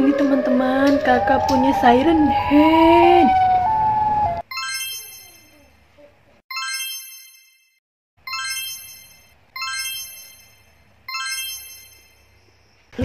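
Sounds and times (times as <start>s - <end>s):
bright metallic chime: 4.5s - 5.7s, 6.5s - 12.4s.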